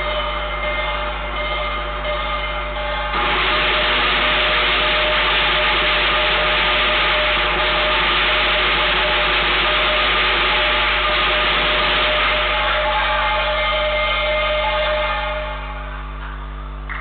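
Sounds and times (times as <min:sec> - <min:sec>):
low hum: 0:00.0 - 0:17.0
loud steady hiss: 0:03.1 - 0:15.8.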